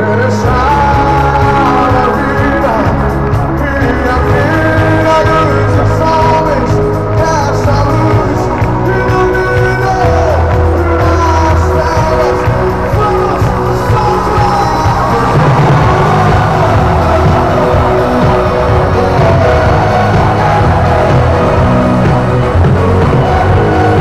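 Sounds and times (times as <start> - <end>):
deep bass: 0.0 - 24.0
live band playing worship music: 0.0 - 24.0
singing: 0.0 - 24.0.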